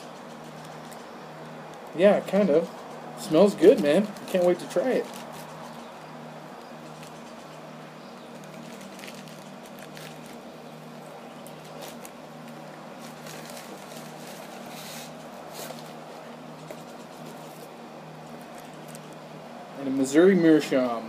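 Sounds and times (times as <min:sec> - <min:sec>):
steady low hum: 0:00.0 - 0:21.0
paper and packaging rustling: 0:03.6 - 0:05.8, 0:08.3 - 0:17.7.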